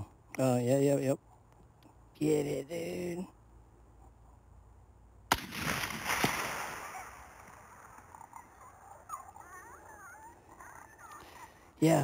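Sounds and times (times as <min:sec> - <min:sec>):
rifle shot with echo: 0:05.3 - 0:08.0.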